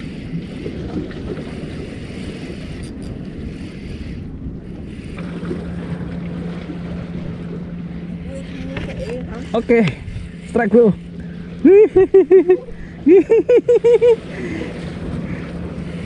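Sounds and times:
wind buffeting microphone: 0.0 - 11.7
sea water washing: 0.0 - 16.0
steady low hum: 0.0 - 16.0.

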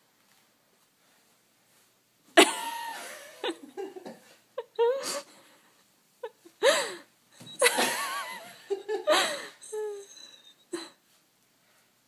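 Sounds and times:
laughter: 2.4 - 5.0, 7.5 - 9.6.

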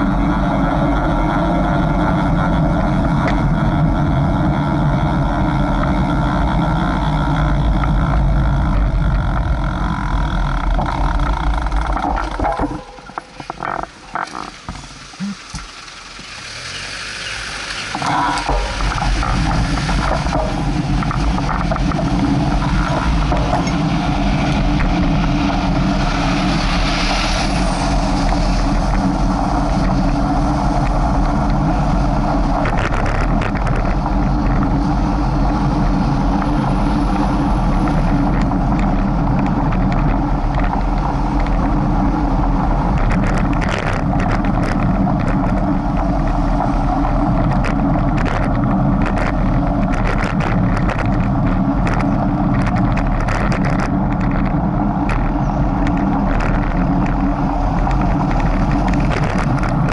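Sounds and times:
road noise: 0.0 - 59.9
vehicle engine humming: 0.0 - 59.9.

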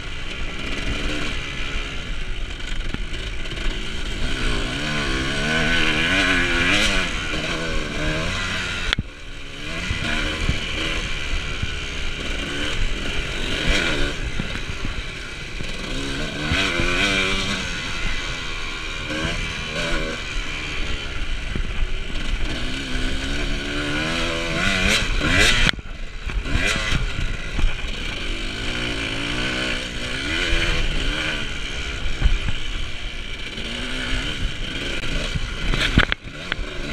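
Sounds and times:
dirt bike engine revving: 0.0 - 36.9.

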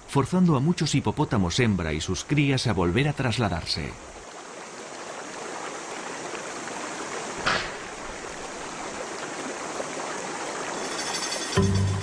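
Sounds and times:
water rushing and sloshing: 0.0 - 11.6
loud splash: 7.4 - 8.5.

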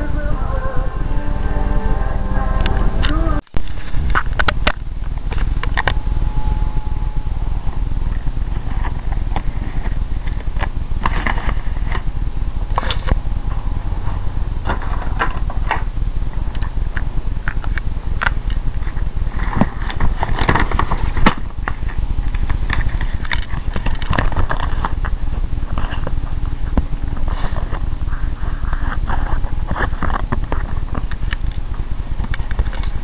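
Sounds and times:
steady low rumble: 0.0 - 33.0.

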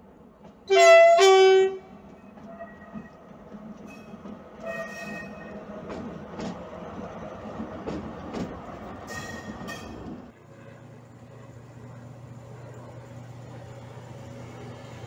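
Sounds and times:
distant diesel locomotive humming: 0.0 - 15.0
locomotive passing: 0.0 - 15.0
train horn notes: 0.7 - 3.1, 4.6 - 5.5
train wheels clicking over rail joints: 1.9 - 10.3.

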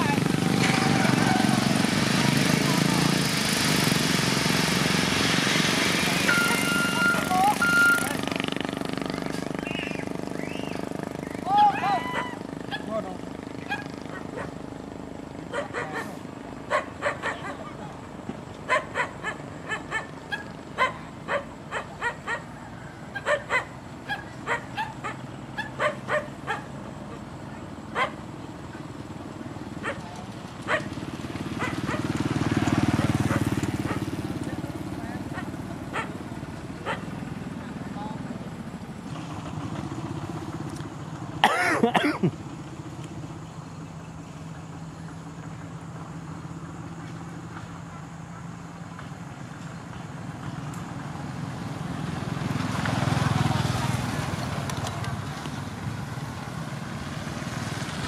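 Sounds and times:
loud rising and falling call: 0.0 - 3.1, 3.9 - 14.5
truck engine humming: 0.0 - 58.0
dog barking: 13.6 - 14.6, 15.5 - 17.8, 18.7 - 22.5, 23.2 - 28.2, 29.8 - 30.0, 30.7 - 30.9, 31.6 - 32.1, 33.0 - 34.1, 35.3 - 36.2, 36.8 - 37.1.

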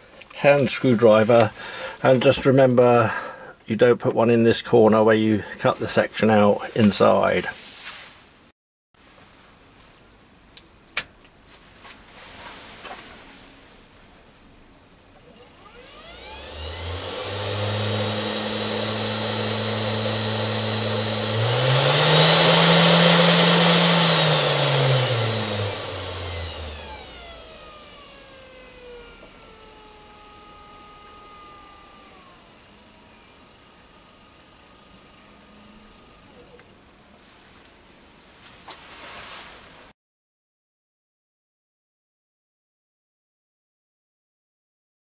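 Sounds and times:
spindle motor whine: 15.3 - 36.7.

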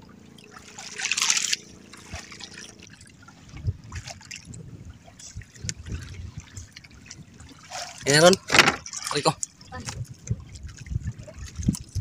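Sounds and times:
water lapping against boat hull: 0.0 - 12.0.

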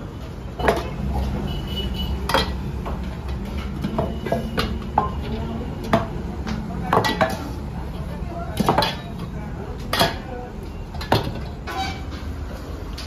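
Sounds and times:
metal bowls clanking on wood: 0.6 - 1.4, 2.1 - 7.5.

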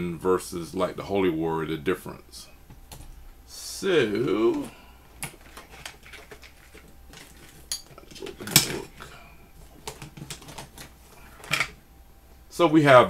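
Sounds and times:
objects clicking and knocking on workbench: 5.2 - 9.1.

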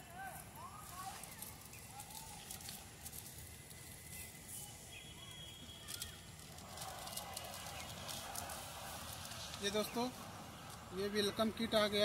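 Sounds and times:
faint bird chirps: 3.8 - 8.2.

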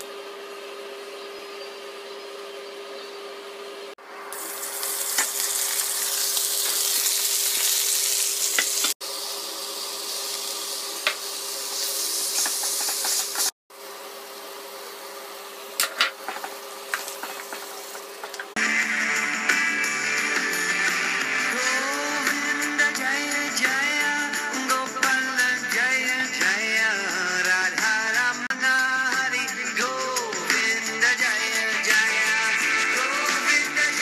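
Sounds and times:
spices and oil sizzling in a pan: 4.3 - 18.5.

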